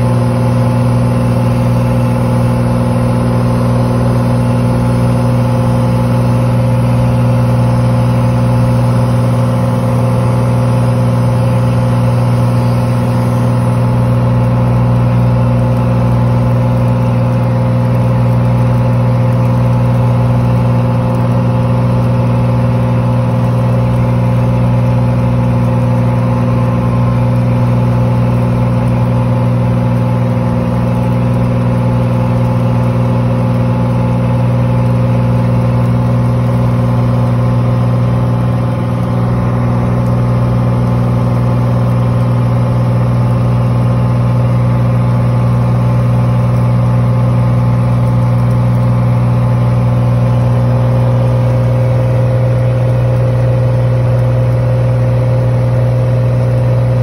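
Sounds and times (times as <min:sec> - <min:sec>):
propeller plane engine drone: 0:00.0 - 0:57.0.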